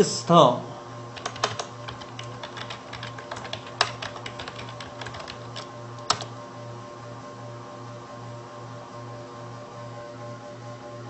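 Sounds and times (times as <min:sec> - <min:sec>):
computer keyboard keys clicking: 0:01.2 - 0:06.3.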